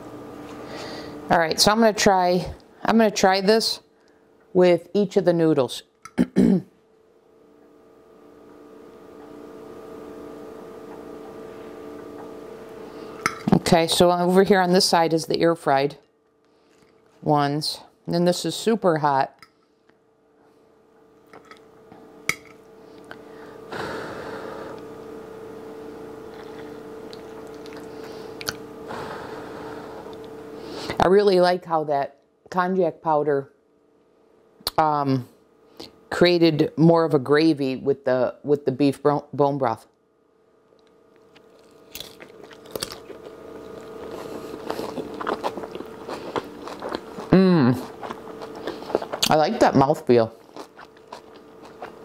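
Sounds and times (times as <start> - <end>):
steady hum with hiss: 0.0 - 52.0
person chewing crunchy food: 26.2 - 28.7, 41.2 - 49.4, 50.3 - 52.0.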